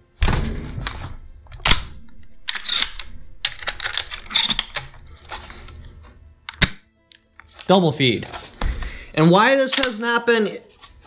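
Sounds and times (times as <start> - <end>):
metallic clicks and rattles: 1.5 - 5.0.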